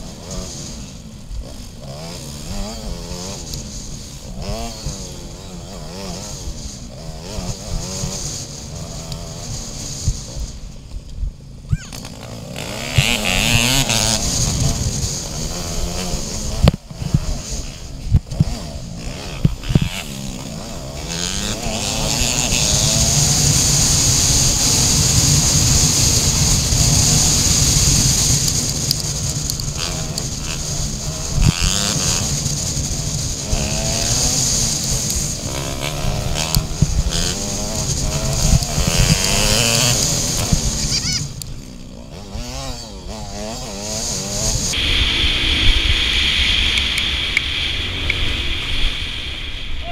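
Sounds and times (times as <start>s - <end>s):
dirt bike engine revving: 0.0s - 49.9s
steady high hiss: 43.2s - 49.9s.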